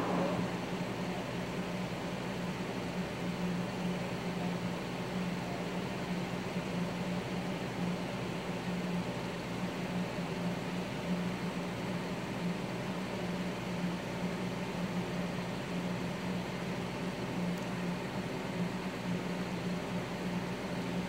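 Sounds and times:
even hiss: 0.0 - 1.8
low hum: 0.0 - 2.3.

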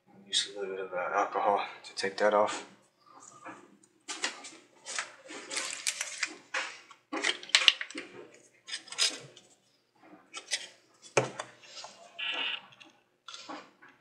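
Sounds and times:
plastic packaging crinkling: 4.1 - 8.1.

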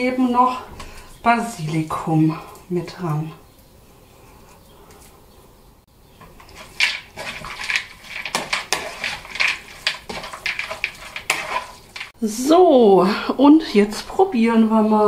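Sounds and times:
wooden spoon stirring in plastic bowl: 6.0 - 12.2.

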